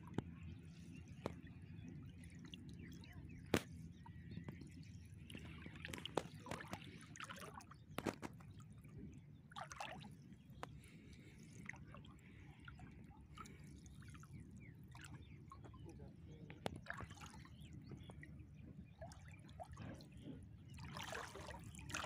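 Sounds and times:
water dripping and splashing: 5.3s - 8.6s, 9.5s - 11.8s, 20.8s - 22.0s.

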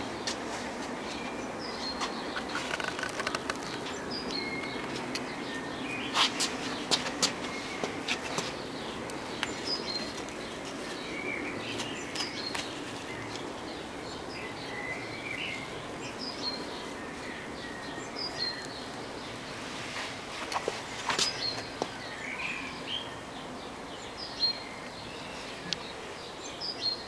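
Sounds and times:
small birds chirping: 0.0s - 27.0s
steady outdoor hiss: 0.0s - 27.0s
sharp clicks: 2.5s - 4.4s.

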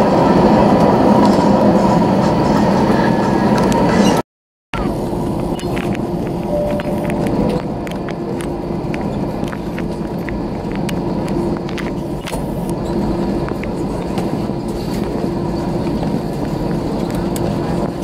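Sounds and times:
jet engines and airflow rushing: 0.0s - 4.2s, 4.8s - 18.0s.

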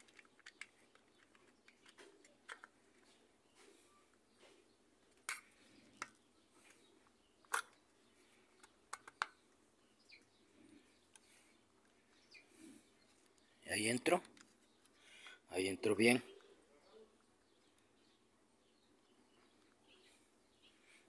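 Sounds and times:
plastic and metal clicks: 0.0s - 2.8s, 7.4s - 7.8s, 8.5s - 9.4s.

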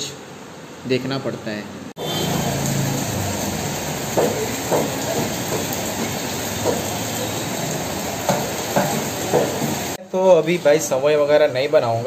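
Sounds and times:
heavy rain on a street: 2.0s - 10.0s.

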